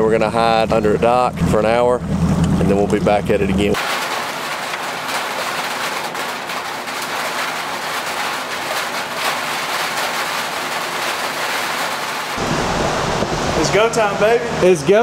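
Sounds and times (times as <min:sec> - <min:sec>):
heavy rain pouring: 0:03.7 - 0:14.6.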